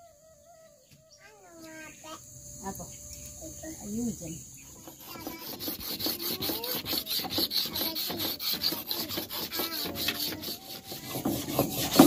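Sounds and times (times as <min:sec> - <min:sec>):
knife scraping on whetstone: 0:04.8 - 0:12.0.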